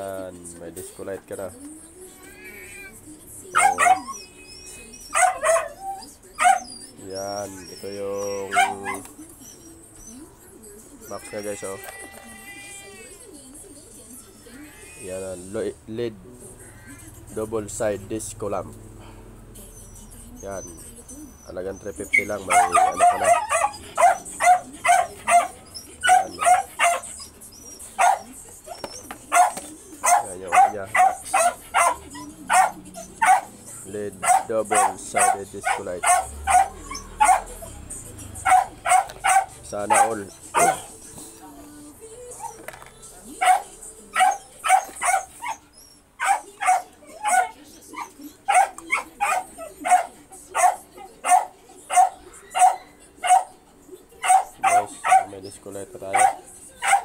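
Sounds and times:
small dog yapping: 3.5s - 6.9s, 7.5s - 9.2s, 22.0s - 33.6s, 34.2s - 37.7s, 38.4s - 40.9s, 43.4s - 53.6s, 54.2s - 55.3s, 56.1s - 57.0s.

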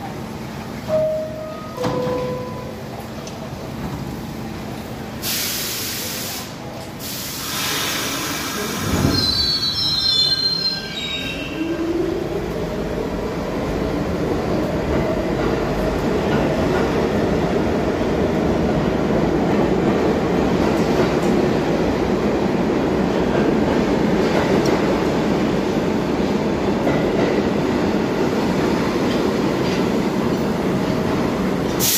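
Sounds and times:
rumble of train cars: 0.0s - 31.9s
air hiss: 5.2s - 9.4s
train wheels squealing: 8.8s - 11.8s.

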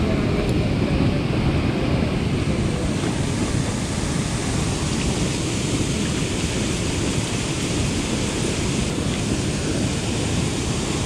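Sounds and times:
wind buffeting microphone: 0.0s - 11.0s
river water rushing: 2.7s - 11.0s.

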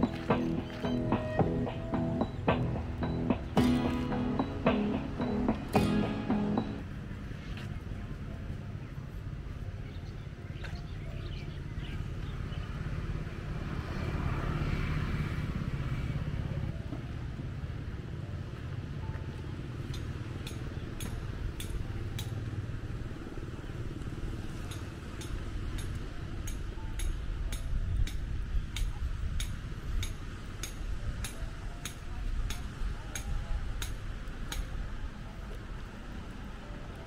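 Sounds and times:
motorbike passing: 0.0s - 6.8s, 12.0s - 26.4s.

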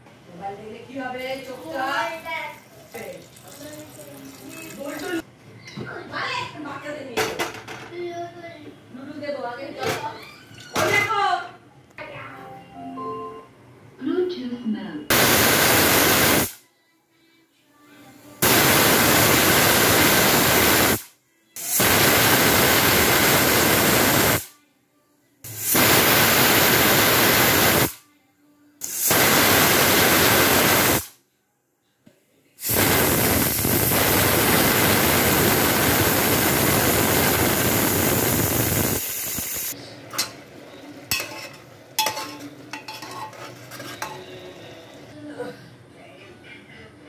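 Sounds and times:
steam hissing from pressure cooker: 15.1s - 16.6s, 18.4s - 24.5s, 25.5s - 28.0s, 28.8s - 31.1s, 32.6s - 39.8s
spoon clinking on metal pot: 41.1s - 44.3s.

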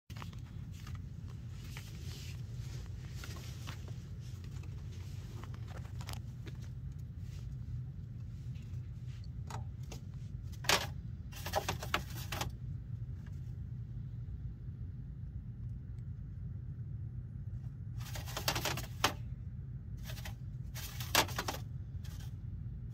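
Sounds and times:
steady low hum: 0.1s - 22.9s
scratchy rattling: 18.0s - 19.2s.

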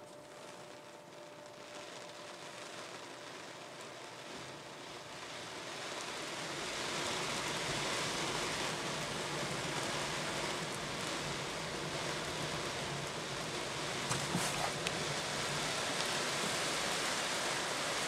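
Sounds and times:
water spray beating on car: 5.9s - 18.0s.

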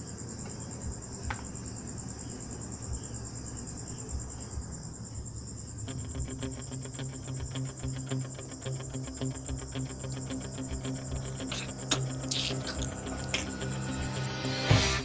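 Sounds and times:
insect trill: 0.0s - 15.0s
music with pulsing beat and bass: 9.6s - 15.0s.

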